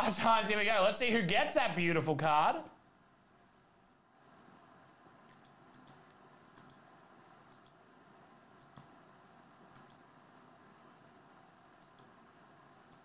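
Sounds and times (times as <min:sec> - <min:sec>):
low room hum: 0:00.0 - 0:13.0
computer mouse clicks: 0:03.8 - 0:04.1, 0:05.3 - 0:07.8, 0:08.6 - 0:09.0, 0:09.7 - 0:10.1, 0:11.8 - 0:12.2.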